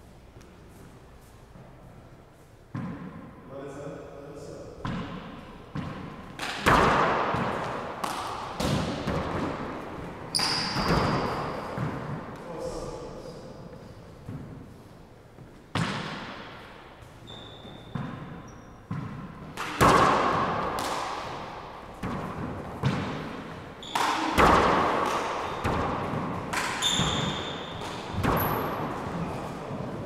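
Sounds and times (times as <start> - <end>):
handball smacking off hands and walls: 4.8 - 12.4, 17.6 - 30.0
sneakers squeaking on hardwood: 8.6 - 12.4, 15.3 - 19.5, 22.0 - 24.4, 25.2 - 30.0.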